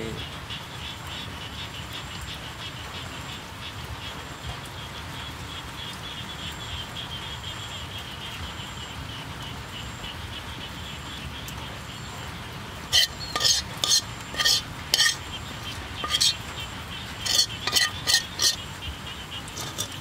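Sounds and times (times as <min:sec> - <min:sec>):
utensil scraping metal wok: 0:12.9 - 0:20.0.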